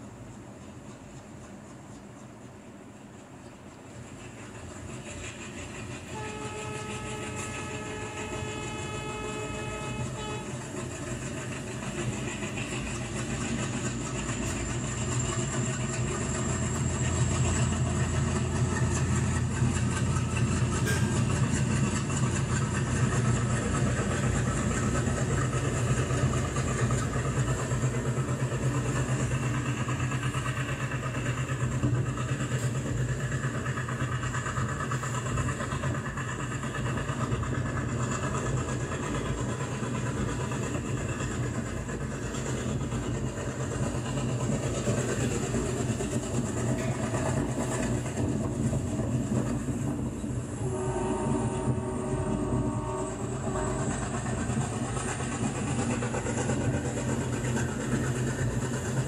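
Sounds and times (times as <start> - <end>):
diesel locomotive engine chugging: 0.0 - 59.0
locomotive horn: 6.1 - 10.7, 50.6 - 54.0.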